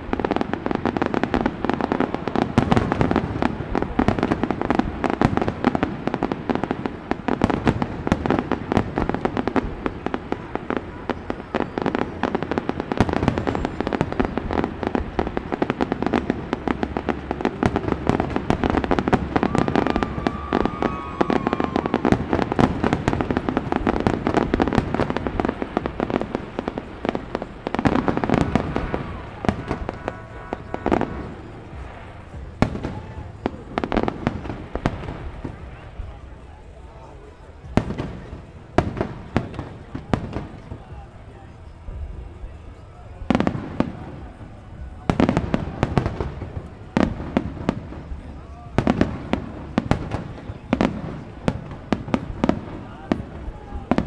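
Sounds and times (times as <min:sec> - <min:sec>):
fireworks bangs and crackling: 0:00.0 - 0:54.0
wavering firework whistle: 0:00.1 - 0:37.1.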